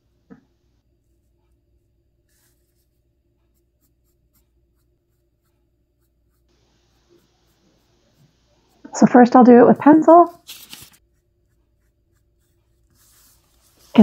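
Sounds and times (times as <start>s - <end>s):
pencil scratching on paper: 2.3s - 8.8s, 10.2s - 14.0s.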